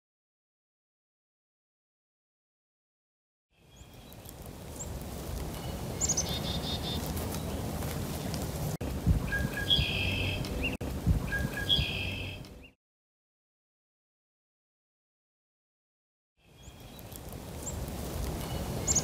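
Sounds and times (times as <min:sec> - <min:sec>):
small birds chirping: 0:03.6 - 0:12.8, 0:16.4 - 0:19.0
wind rumble on microphone: 0:03.7 - 0:12.7, 0:16.6 - 0:19.0.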